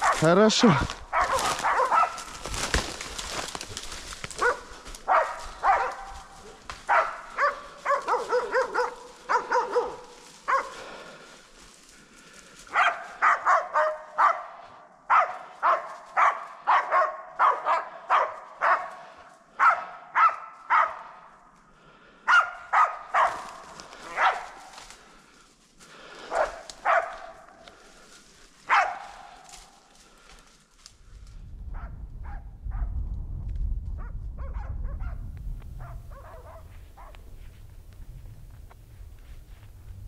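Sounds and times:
dogs barking sharply: 0:00.0 - 0:02.4, 0:04.4 - 0:10.8, 0:12.7 - 0:21.2, 0:22.3 - 0:24.7, 0:26.3 - 0:27.5, 0:28.7 - 0:29.4, 0:35.8 - 0:37.2.

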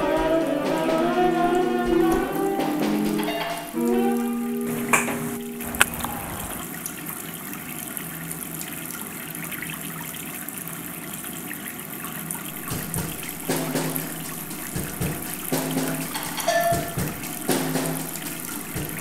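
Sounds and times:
sink tap running: 0:12.5 - 0:19.0.

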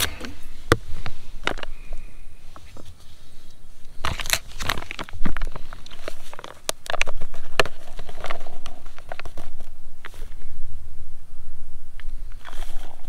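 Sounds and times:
plastic packet crinkling: 0:04.0 - 0:09.6.

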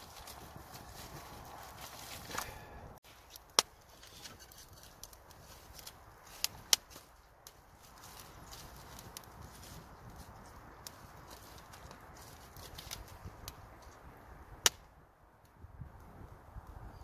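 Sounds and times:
fire crackling: 0:00.0 - 0:17.0
sharp pops from fire: 0:03.3 - 0:10.2, 0:10.8 - 0:16.1.

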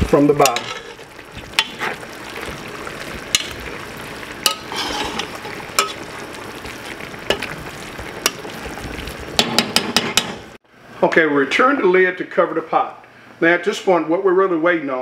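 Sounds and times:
pot sizzling: 0:00.0 - 0:10.6
spoon stirring in a pot: 0:00.4 - 0:10.4
spoon knocking against pot: 0:09.4 - 0:10.4.

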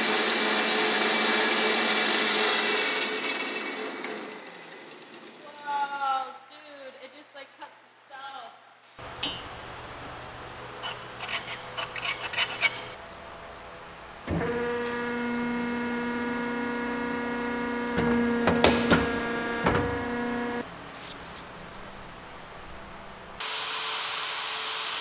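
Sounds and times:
loud clatter of steel cut: 0:00.0 - 0:05.4, 0:10.8 - 0:13.0, 0:17.9 - 0:20.0
metal shear motor humming: 0:09.0 - 0:23.4
steel clinking and scraping: 0:10.8 - 0:13.0.

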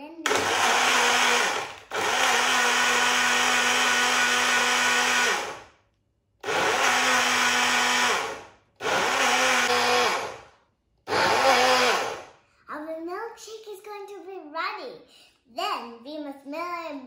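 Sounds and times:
blender motor humming: 0:00.2 - 0:05.7, 0:06.4 - 0:10.5, 0:11.1 - 0:12.3.

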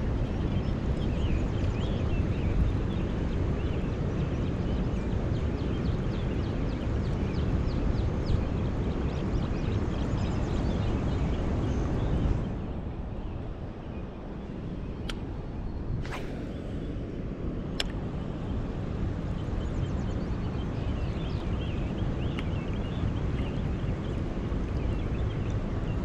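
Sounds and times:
wind buffeting microphone: 0:00.0 - 0:26.0
short bird chirps: 0:15.9 - 0:17.0.

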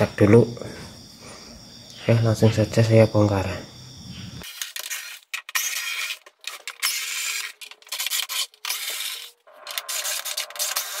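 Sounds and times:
cordless drill spurts: 0:04.4 - 0:11.0.

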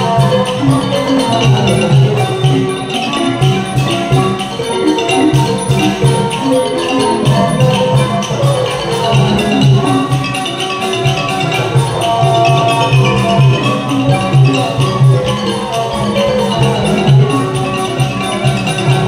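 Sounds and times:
gong circles ringing melody: 0:00.0 - 0:19.0
xylophone melody: 0:00.0 - 0:19.0
steady low drum beat: 0:07.3 - 0:10.4, 0:11.0 - 0:15.5.

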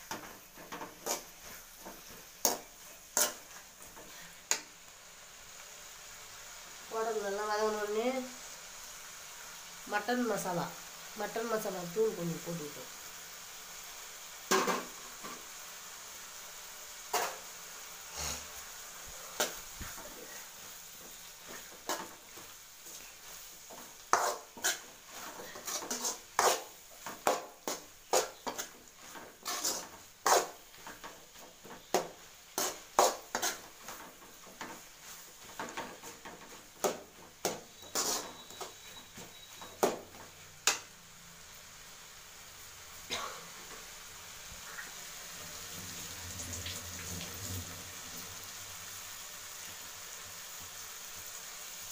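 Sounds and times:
spoon clinking and scraping a pan: 0:00.0 - 0:04.7, 0:14.5 - 0:15.4, 0:17.1 - 0:17.4, 0:21.0 - 0:40.9.

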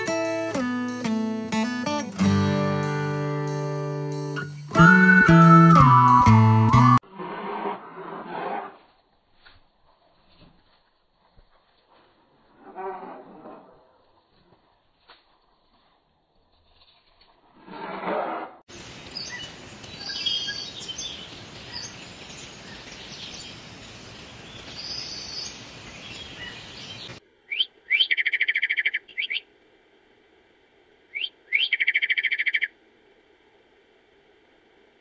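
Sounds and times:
steady rushing hiss: 0:18.7 - 0:27.9, 0:29.0 - 0:31.6, 0:32.7 - 0:35.0
birds chirping: 0:18.8 - 0:29.5, 0:31.1 - 0:32.7
fast trilled bird calls: 0:26.2 - 0:29.5, 0:31.1 - 0:32.7.

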